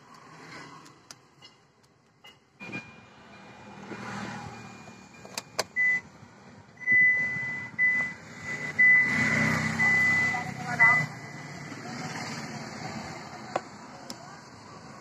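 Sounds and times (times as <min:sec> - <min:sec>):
high-pitched electronic beeps: 0:06.8 - 0:11.6.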